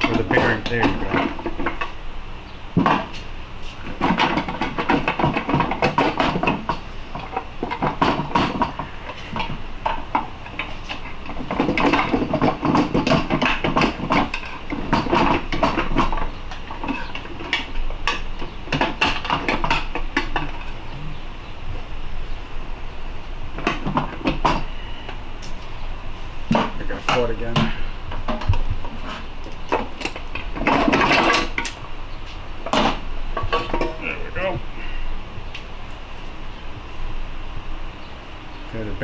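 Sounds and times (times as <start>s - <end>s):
tools knocking and scraping metal: 0.0s - 2.0s, 2.8s - 20.8s, 23.6s - 25.6s, 26.5s - 31.8s, 32.6s - 34.1s.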